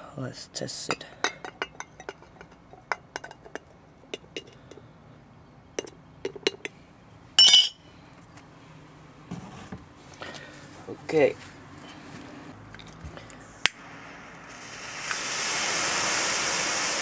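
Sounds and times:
spoon tapping tin can: 5.8s - 6.7s.

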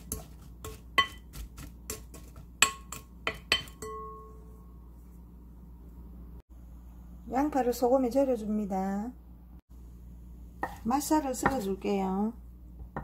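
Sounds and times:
glass bowl clinking: 2.6s - 4.7s.

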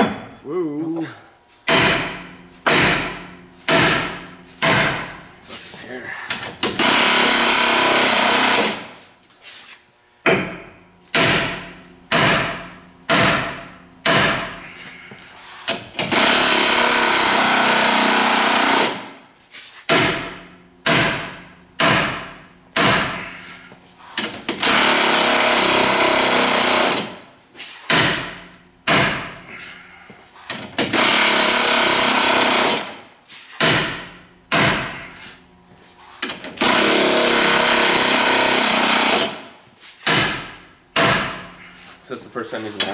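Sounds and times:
air tool bursts: 6.7s - 9.0s, 15.6s - 19.1s, 24.2s - 27.2s, 30.9s - 33.0s, 36.3s - 39.5s.

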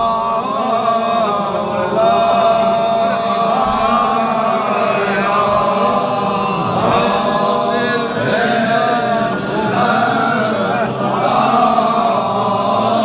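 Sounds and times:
men chanting: 0.0s - 13.0s.

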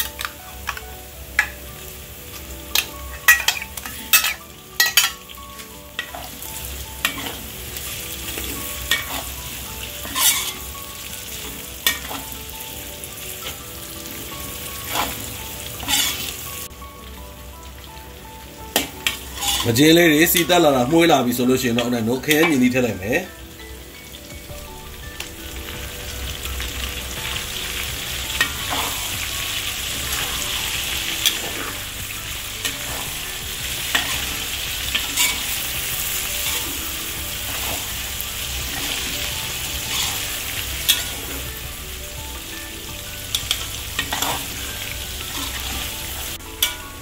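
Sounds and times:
fish sizzling in oil: 0.0s - 47.0s
metal spatula scraping wok: 2.4s - 12.5s, 13.2s - 16.7s, 18.7s - 22.6s, 25.2s - 41.6s, 43.3s - 47.0s.

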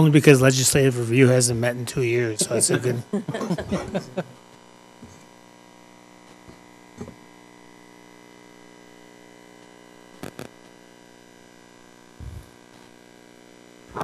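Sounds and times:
electrical mains hum: 0.0s - 14.0s
soft low bump: 12.2s - 12.5s.

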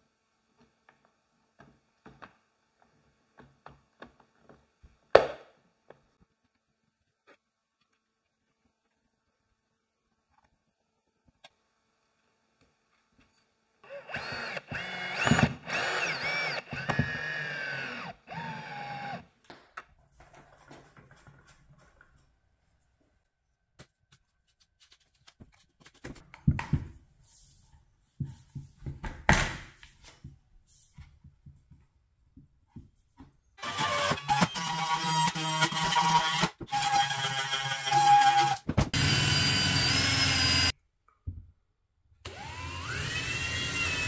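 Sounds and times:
electric saw motor whining: 13.9s - 19.2s, 39.0s - 40.7s, 42.3s - 44.0s.

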